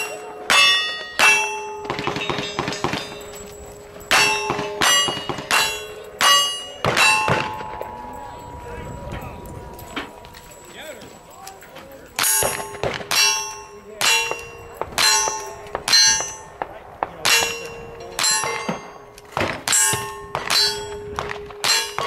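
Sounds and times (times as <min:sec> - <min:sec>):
bullets clanging on steel target: 0:00.0 - 0:08.3, 0:11.5 - 0:22.0
gunshots: 0:01.2 - 0:03.3, 0:12.2 - 0:22.0.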